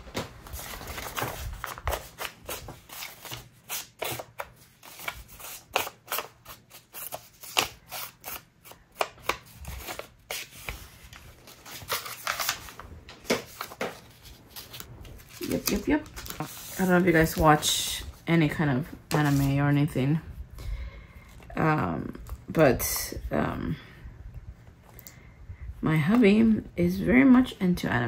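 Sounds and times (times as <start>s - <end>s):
paper rustling and clicking: 0.0s - 17.5s.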